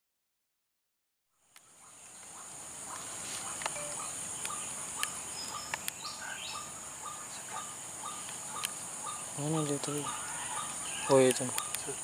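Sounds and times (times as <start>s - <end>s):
insects droning: 1.3s - 12.0s
sharp ticks: 8.2s - 8.8s, 11.1s - 12.0s.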